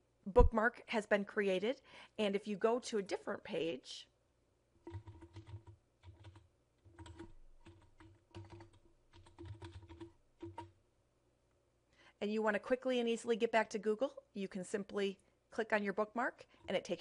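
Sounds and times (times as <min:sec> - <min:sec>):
typing on computer keyboard: 0:04.8 - 0:10.8.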